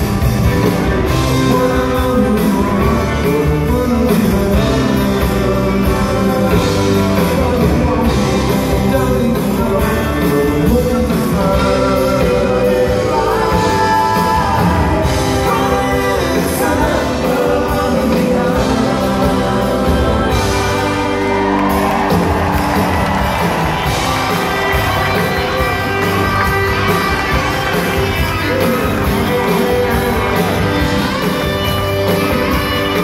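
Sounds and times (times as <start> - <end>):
live rock band: 0.0 - 33.0
crowd whooping and shouting: 20.5 - 33.0.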